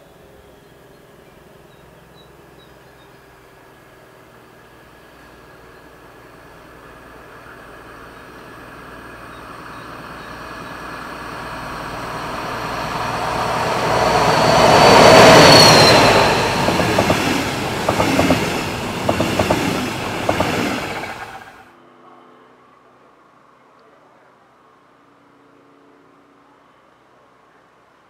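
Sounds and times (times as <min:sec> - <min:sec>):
diesel locomotive passing with whine: 0:00.0 - 0:21.7
train wheels clicking over rail joints: 0:08.4 - 0:21.6.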